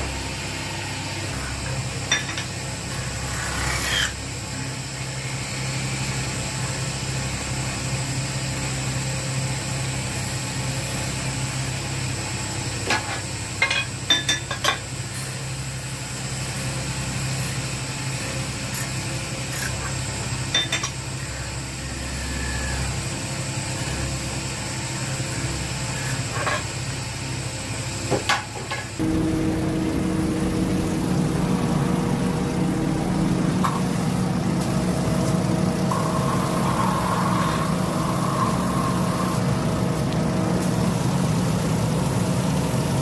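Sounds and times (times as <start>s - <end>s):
metal lathe humming: 29.0s - 42.2s.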